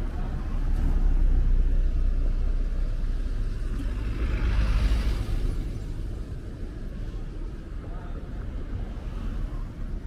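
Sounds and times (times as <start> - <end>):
vehicle passing: 0.0 - 6.3
traffic rumble: 0.0 - 10.0.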